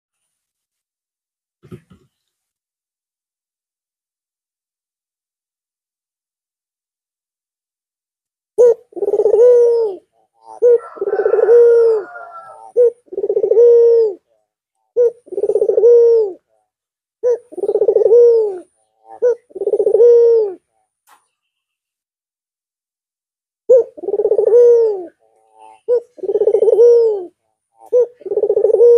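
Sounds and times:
dove cooing: 8.6 - 16.5, 17.2 - 20.7, 23.7 - 28.9.

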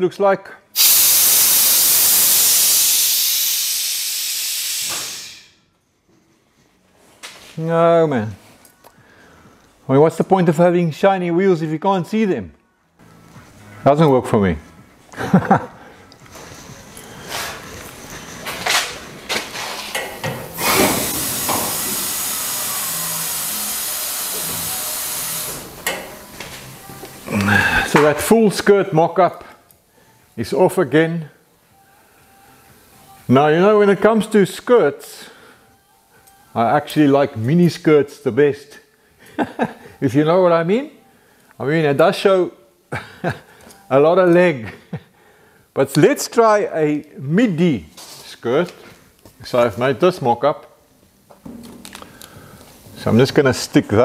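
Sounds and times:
air hissing from suspension: 0.8 - 5.6, 19.5 - 26.1.

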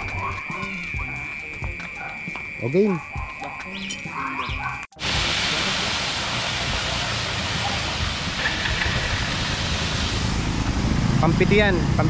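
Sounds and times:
water gushing under pressure: 5.0 - 11.6.

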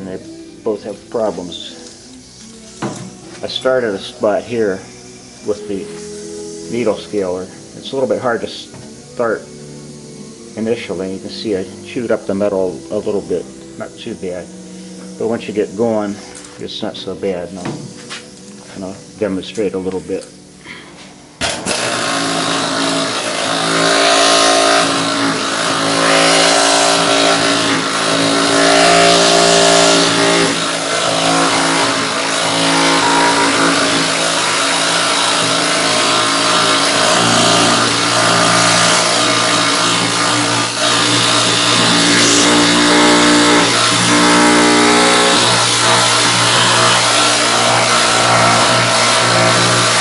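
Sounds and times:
needle scaler hammering metal: 21.4 - 50.0.

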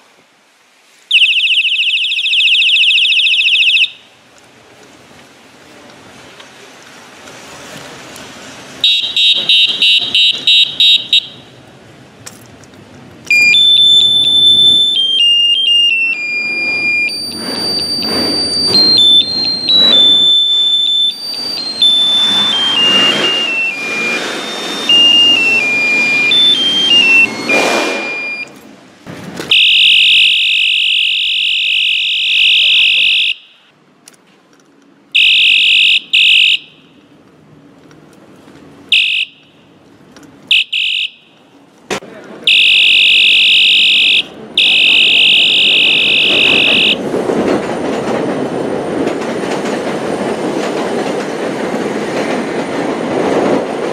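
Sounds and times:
electronic bicycle horn tones: 8.8 - 11.5, 13.3 - 28.6, 29.5 - 33.7, 35.2 - 37.0, 38.9 - 39.7, 40.5 - 41.4, 42.5 - 47.0.

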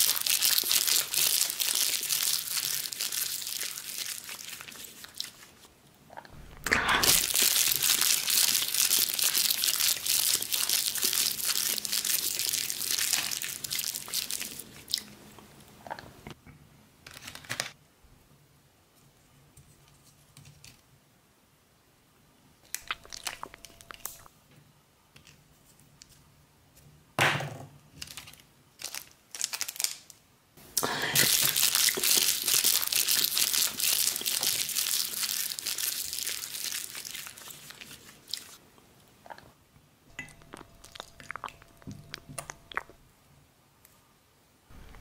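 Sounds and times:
thin sheet crinkling: 6.4 - 14.7, 17.0 - 17.8, 22.7 - 24.3, 27.9 - 30.2.

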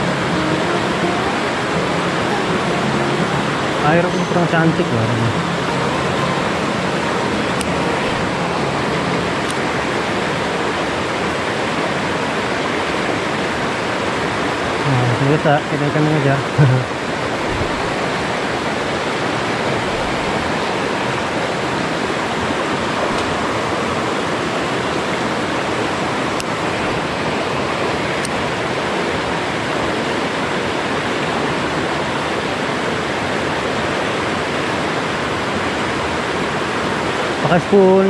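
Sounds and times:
river rapids rushing: 0.0 - 38.0.

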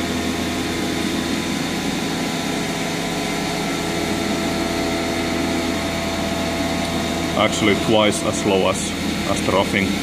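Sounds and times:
milling machine cutting hum: 0.0 - 10.0.

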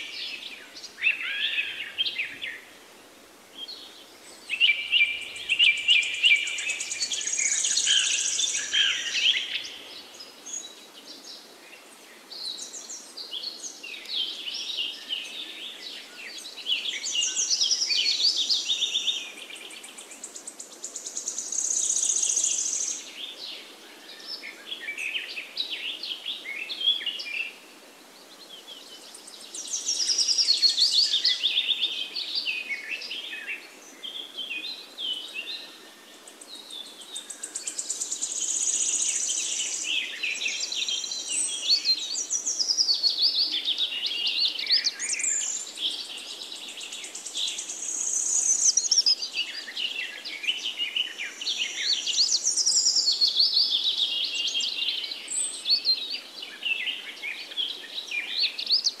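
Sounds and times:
birds chirping and singing: 36.6 - 59.0.

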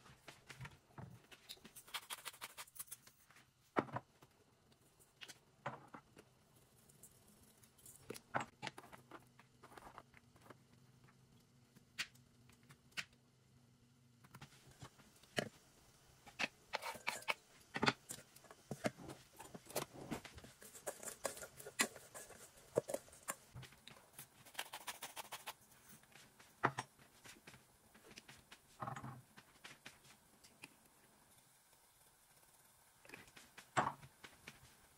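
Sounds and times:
utensils clicking on metal dishes: 16.3 - 19.0.

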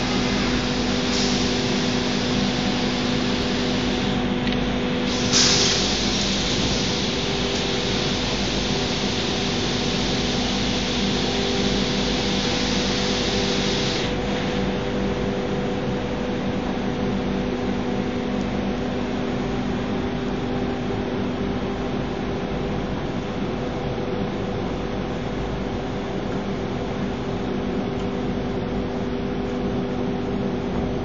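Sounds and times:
dust extraction hiss: 0.0 - 14.9.

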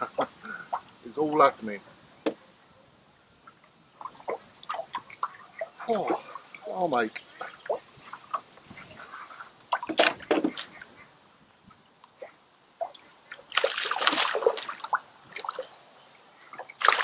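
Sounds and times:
fish splashing in water: 12.2 - 15.8, 16.5 - 17.0.

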